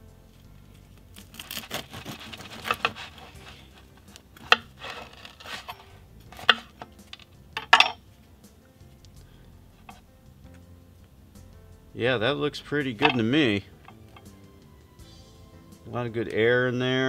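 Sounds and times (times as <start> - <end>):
bread knife sawing crust: 1.2 - 5.8.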